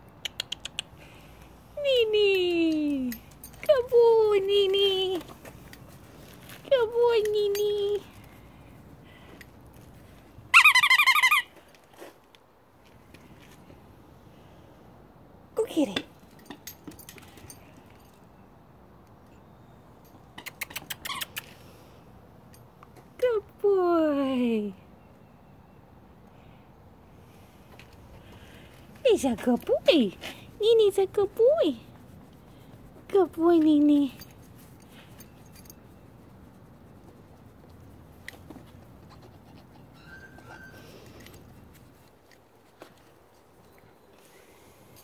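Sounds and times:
squeaky toy squeaks: 0:10.5 - 0:11.5, 0:39.9 - 0:41.0
hand rubbing fur: 0:28.3 - 0:42.2.

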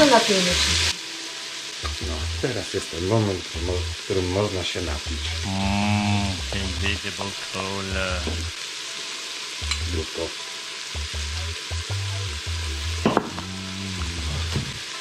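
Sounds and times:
food sizzling in a frying pan: 0:00.0 - 0:15.0
sharp knock: 0:13.0 - 0:13.5.

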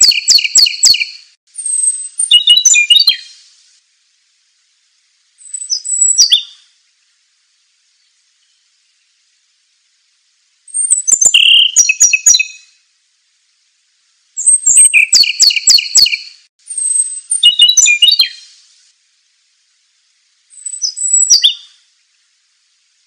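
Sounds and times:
songbird singing: 0:00.0 - 0:03.6, 0:05.0 - 0:12.9, 0:14.4 - 0:18.6, 0:20.2 - 0:22.4.

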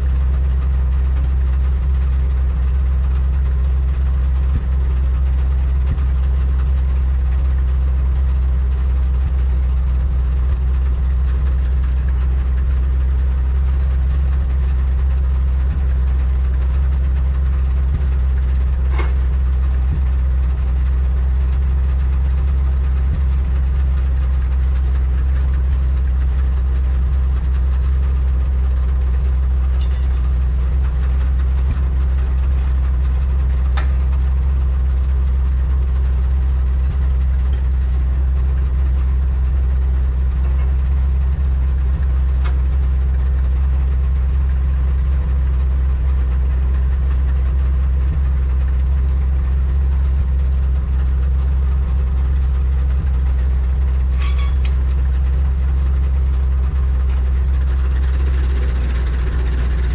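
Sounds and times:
truck engine idling: 0:00.0 - 0:59.9
light metallic clinks: 0:29.8 - 0:30.3.

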